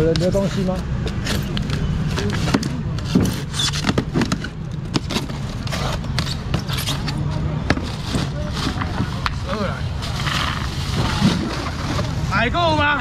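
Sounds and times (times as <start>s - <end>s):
foam crackling and squeaking: 0.4s - 13.0s
knife scraping styrofoam: 3.0s - 4.0s, 5.0s - 9.3s.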